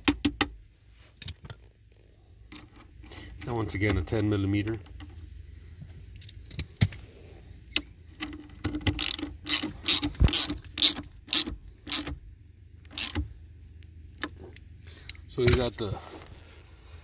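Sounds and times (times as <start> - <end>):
socket ratchet clicking: 7.7 - 12.2, 12.9 - 13.3.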